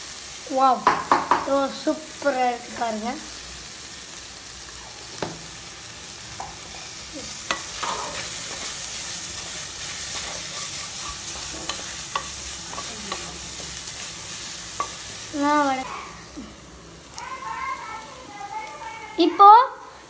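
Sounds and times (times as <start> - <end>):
masala sizzling in oil: 0.0 - 20.0
spatula scraping and tapping pan: 6.4 - 8.8, 9.4 - 14.0, 14.8 - 15.1.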